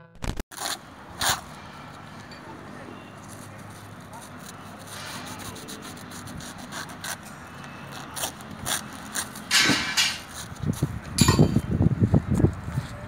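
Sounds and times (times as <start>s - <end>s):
paper bags scraping metal: 0.6s - 10.6s
rustling scrape: 3.1s - 10.9s.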